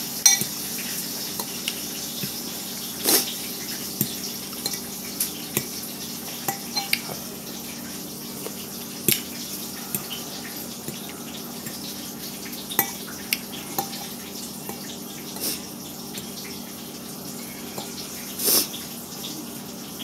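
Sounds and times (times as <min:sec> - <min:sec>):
fork clinking against glass bowl: 0:00.2 - 0:00.5, 0:06.4 - 0:07.2, 0:12.8 - 0:14.8.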